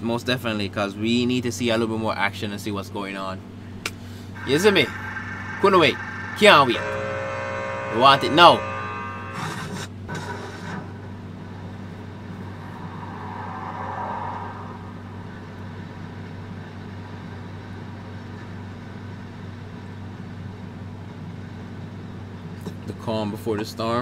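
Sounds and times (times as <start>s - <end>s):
low hum: 3.5s - 22.6s.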